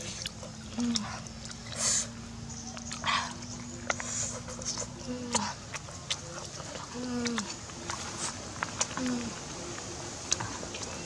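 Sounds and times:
snails sucked from shells: 0:01.6 - 0:02.2.

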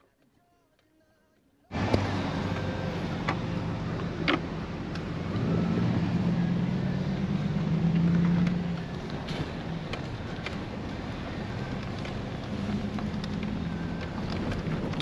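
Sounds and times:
car engine hum: 0:01.7 - 0:15.0.

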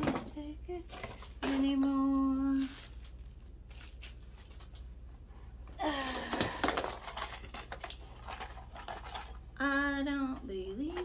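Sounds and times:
items clinking in cardboard box: 0:06.1 - 0:09.4.

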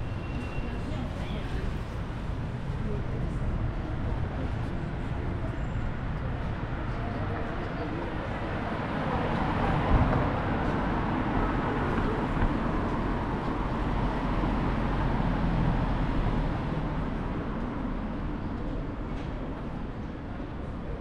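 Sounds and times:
rumble of passing vehicles: 0:00.0 - 0:21.0.

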